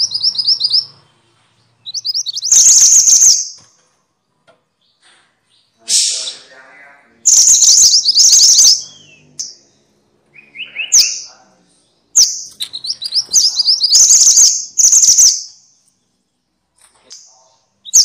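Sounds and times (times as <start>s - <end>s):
low bird trill: 0.0s - 3.6s, 7.2s - 11.4s, 12.1s - 16.1s
bird chattering calls: 1.8s - 3.6s, 7.2s - 9.6s, 12.2s - 15.5s.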